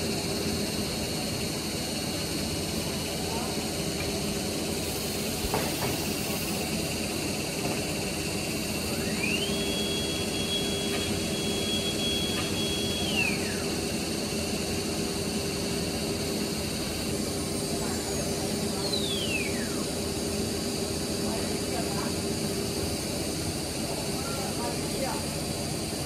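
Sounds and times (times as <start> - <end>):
rushing hiss: 4.6 - 7.2
router spindle motor whine: 8.3 - 20.7.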